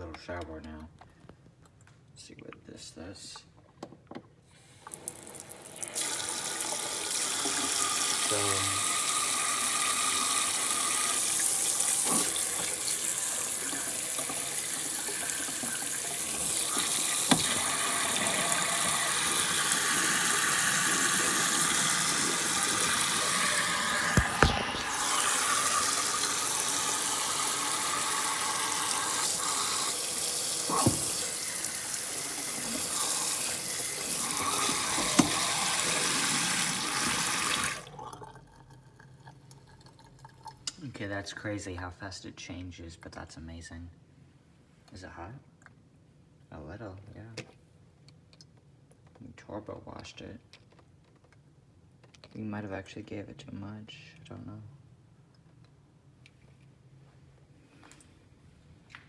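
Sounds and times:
faucet water running into sink: 0:04.8 - 0:40.6.

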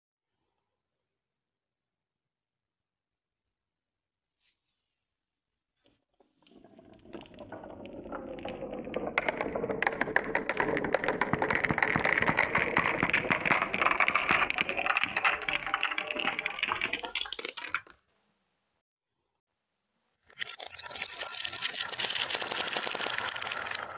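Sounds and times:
marbles clattering down wooden tracks: 0:06.5 - 0:18.0, 0:20.4 - 0:23.9.

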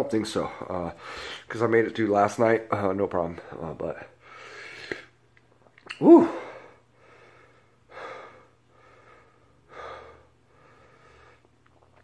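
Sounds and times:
man breathing heavily: 0:00.4 - 0:01.5, 0:04.2 - 0:05.1, 0:06.1 - 0:11.6
man shouting woo: 0:05.9 - 0:06.5.

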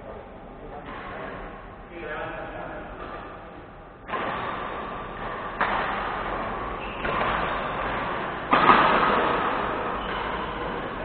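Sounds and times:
racket striking shuttlecock: 0:04.0 - 0:11.0.

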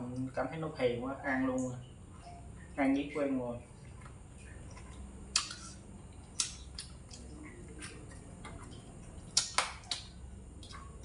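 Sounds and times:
mouth clicks and smacks chewing: 0:03.8 - 0:11.0.

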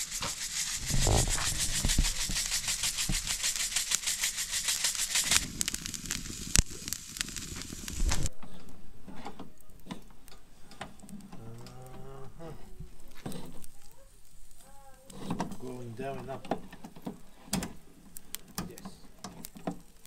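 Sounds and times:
rapid scraping strokes: 0:00.0 - 0:08.3.

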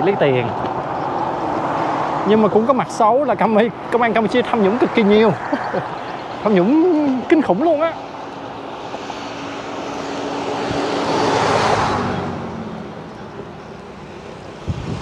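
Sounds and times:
vehicle passing at speed: 0:00.0 - 0:06.8, 0:08.1 - 0:15.0.

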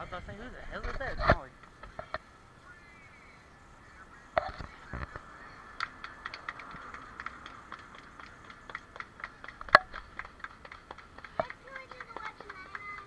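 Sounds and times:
people clapping: 0:05.6 - 0:13.0.

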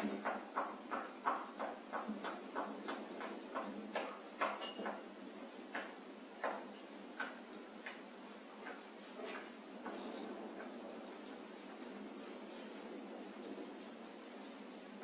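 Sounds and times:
rat clicking and scratching: 0:05.7 - 0:14.6.

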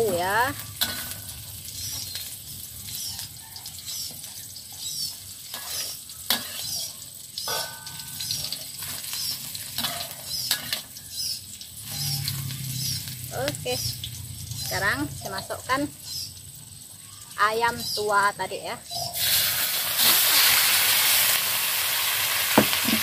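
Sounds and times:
food sizzling in hot oil: 0:00.0 - 0:23.0
metal spatula scraping wok: 0:00.1 - 0:03.3, 0:03.9 - 0:13.2
sharp metal clink: 0:07.4 - 0:08.4.

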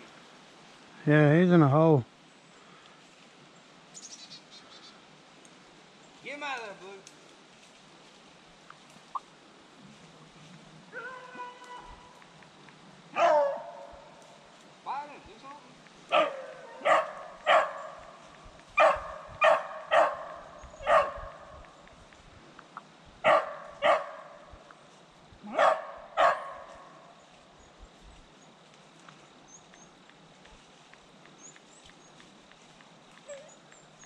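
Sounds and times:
faint bird chirps: 0:03.9 - 0:05.0
dog barking: 0:13.1 - 0:14.0, 0:16.1 - 0:18.1, 0:18.8 - 0:21.4, 0:23.2 - 0:24.4, 0:25.5 - 0:27.0.

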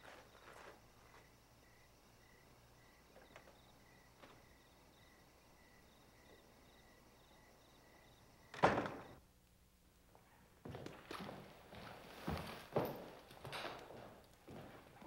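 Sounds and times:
crickets chirping: 0:00.0 - 0:09.2
heavy door shutting: 0:08.5 - 0:09.2.

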